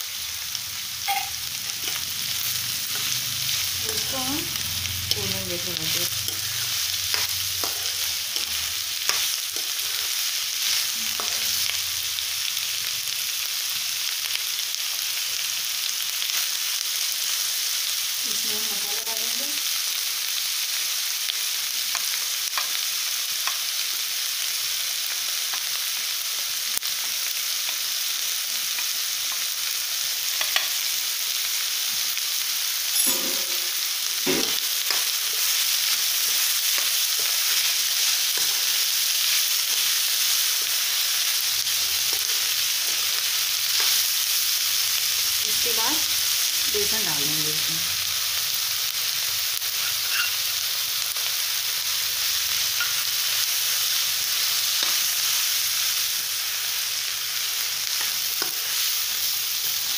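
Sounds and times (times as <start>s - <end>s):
vegetables sizzling in oil: 0.0s - 59.9s
steel spoon scraping pan: 49.8s - 50.4s.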